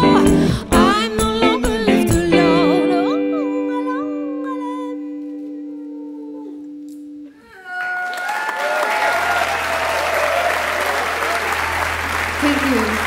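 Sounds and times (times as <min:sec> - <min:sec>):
wavering whoop: 0:07.4 - 0:11.7
audience applause: 0:07.5 - 0:13.0.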